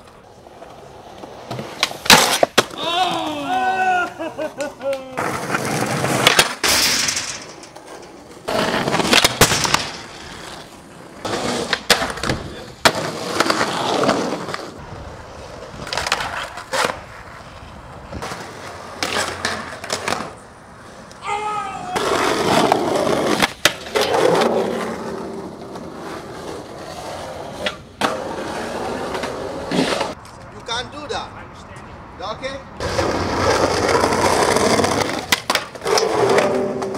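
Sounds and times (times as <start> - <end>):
skateboard clack: 0.0 - 20.4, 21.8 - 30.2, 32.8 - 36.9
skateboard wheels rolling on concrete: 0.0 - 36.9
skateboard pop and landing clacks: 1.5 - 2.8, 5.5 - 7.5, 8.5 - 10.1, 11.4 - 13.7, 23.2 - 24.5, 34.6 - 36.9.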